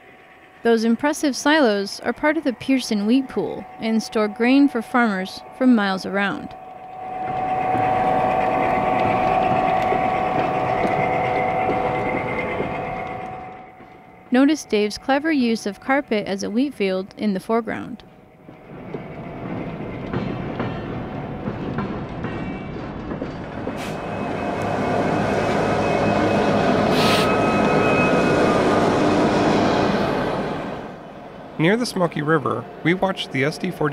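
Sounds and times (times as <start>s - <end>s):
model trains whining and rumbling: 0.0s - 33.9s
short hisses: 26.9s - 27.4s.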